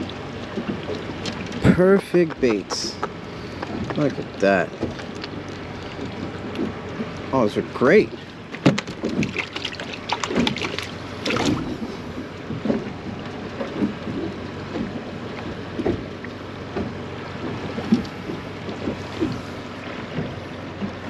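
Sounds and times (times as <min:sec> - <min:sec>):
water slapping against boat hull: 0:00.0 - 0:21.0.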